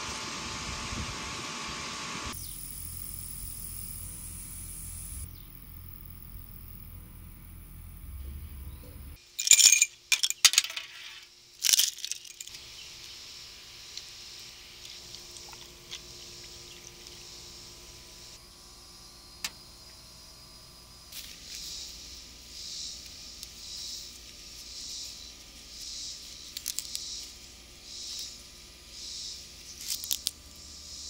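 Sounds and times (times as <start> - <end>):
kitchenware clinking and rattling: 9.4 - 11.0.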